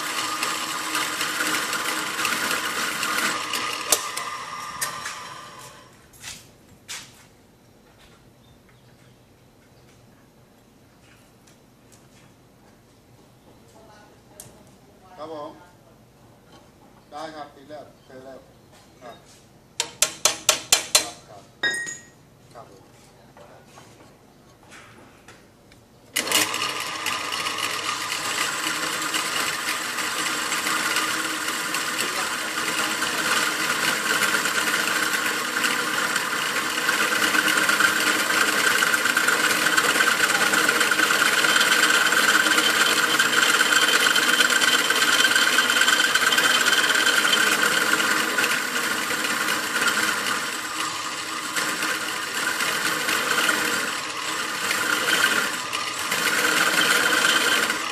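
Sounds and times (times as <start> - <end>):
drill press drilling steel: 0.0 - 5.9, 26.2 - 57.9.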